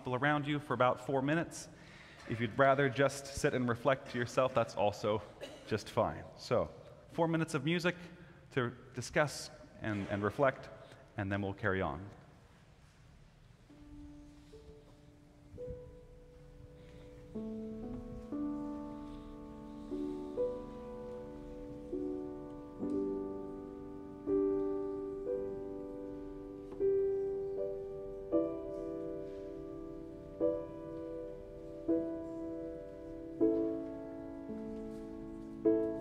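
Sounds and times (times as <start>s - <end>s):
slow gentle piano music: 13.4s - 36.0s.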